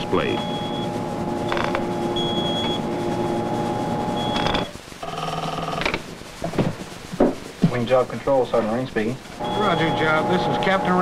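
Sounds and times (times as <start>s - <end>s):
electrical equipment hum: 0.0s - 11.0s
high beep tone: 0.4s - 1.6s, 2.2s - 2.8s, 9.4s - 10.2s.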